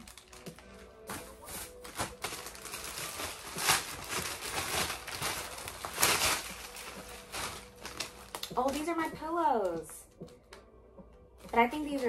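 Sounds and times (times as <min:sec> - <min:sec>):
plastic bag crinkling and tearing: 0:00.0 - 0:08.9.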